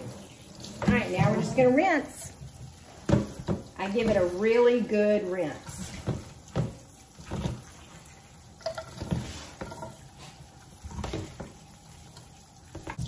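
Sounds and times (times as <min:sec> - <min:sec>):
sprayer running water into sink: 0:00.0 - 0:08.3.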